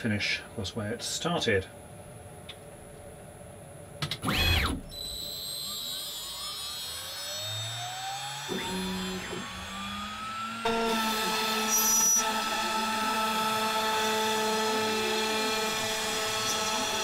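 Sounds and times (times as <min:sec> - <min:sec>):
drive motors humming: 0:04.1 - 0:17.0
spindle whine rising: 0:04.2 - 0:17.0.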